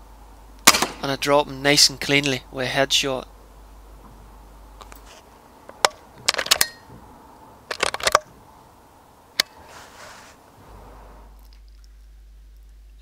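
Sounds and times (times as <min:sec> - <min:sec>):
air rifle clicks and rattles: 0:05.7 - 0:06.9, 0:07.7 - 0:08.3.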